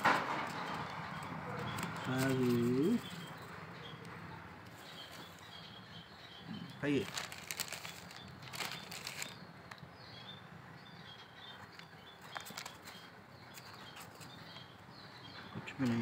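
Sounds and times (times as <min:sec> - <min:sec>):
rustling on newspaper: 0:00.0 - 0:03.5, 0:04.7 - 0:05.6, 0:06.8 - 0:09.4, 0:12.2 - 0:14.4.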